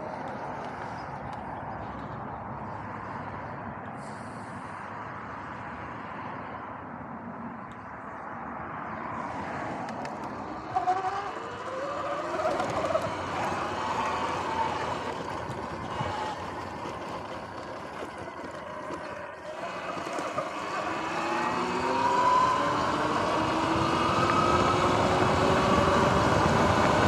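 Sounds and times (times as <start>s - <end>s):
wind: 0.0s - 27.0s
tyres rolling on grass: 9.8s - 23.4s
electric dirt bike motor whine: 10.1s - 27.0s.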